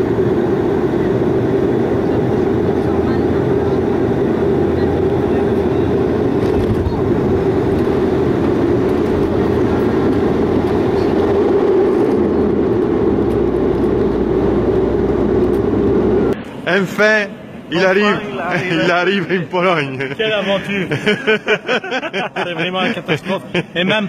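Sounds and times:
airliner engine and propeller drone: 0:00.0 - 0:23.9.

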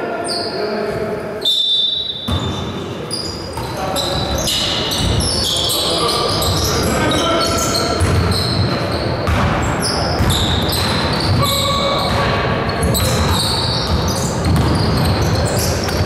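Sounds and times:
shoes squeaking on floor: 0:00.2 - 0:16.0
basketball bouncing on hardwood: 0:09.2 - 0:09.6, 0:13.9 - 0:15.1.

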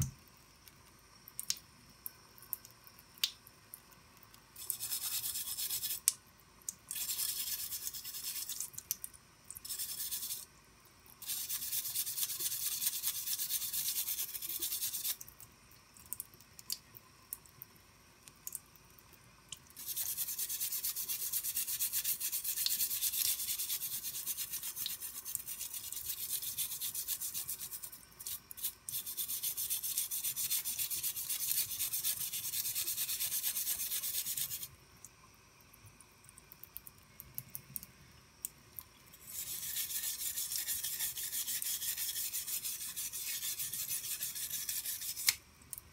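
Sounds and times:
brush scrubbing metal blade: 0:04.6 - 0:06.1, 0:06.9 - 0:08.6, 0:09.6 - 0:10.4, 0:11.2 - 0:15.2, 0:19.8 - 0:34.7, 0:39.2 - 0:45.4.

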